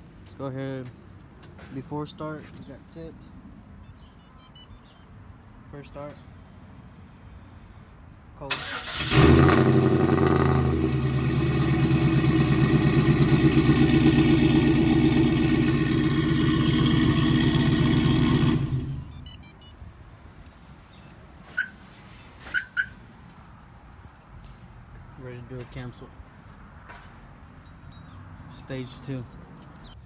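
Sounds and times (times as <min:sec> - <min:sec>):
car engine idling: 0:08.6 - 0:19.2.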